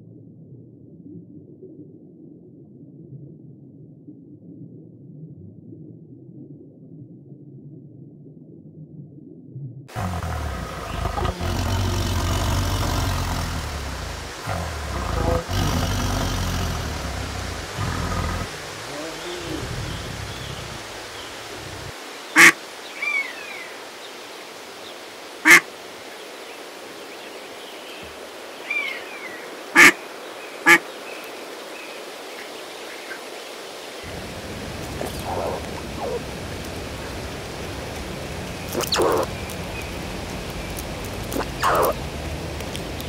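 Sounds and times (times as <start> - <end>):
geese honking: 9.9 - 22.6, 29.8 - 30.0, 38.7 - 39.3, 41.3 - 42.0
high peeping of goslings: 22.4 - 22.6, 35.0 - 36.2, 38.7 - 39.9, 41.3 - 42.0.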